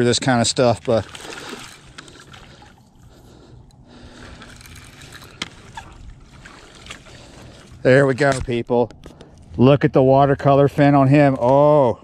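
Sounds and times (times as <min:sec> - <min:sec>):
water trickling and sloshing: 0:00.0 - 0:09.1
fishing reel cranking: 0:04.1 - 0:06.0.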